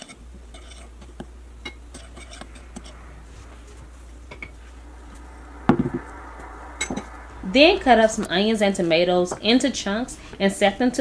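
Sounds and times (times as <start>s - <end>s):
steady low hum: 0.0s - 11.0s
loud thump: 5.6s - 6.2s.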